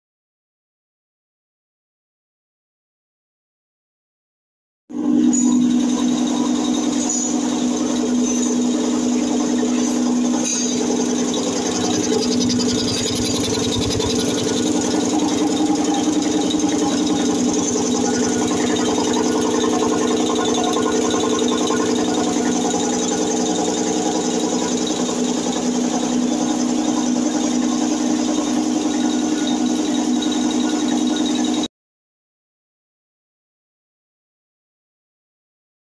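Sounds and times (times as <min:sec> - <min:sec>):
air compressor running: 0:04.9 - 0:31.7.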